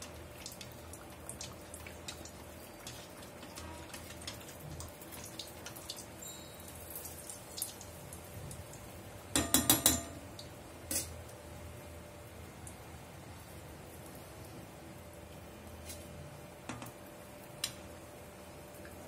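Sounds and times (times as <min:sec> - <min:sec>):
food sizzling in hot oil: 0:00.0 - 0:11.5
metal ladle clinking on pan: 0:09.4 - 0:10.2.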